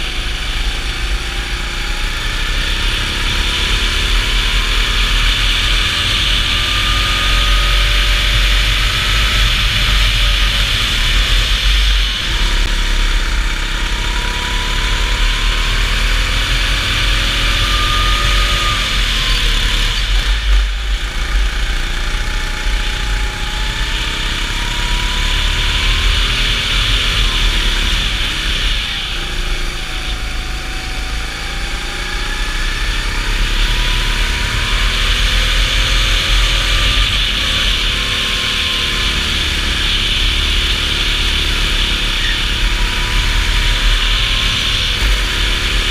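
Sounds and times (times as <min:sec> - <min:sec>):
go-kart engine revving: 0:00.0 - 0:45.9.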